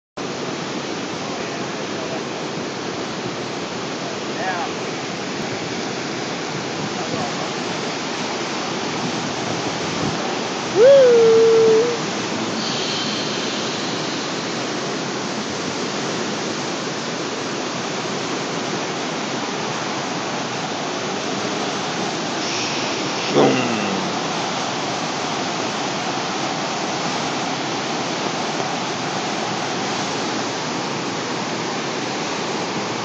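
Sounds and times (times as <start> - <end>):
river water rushing: 0.2 - 33.0.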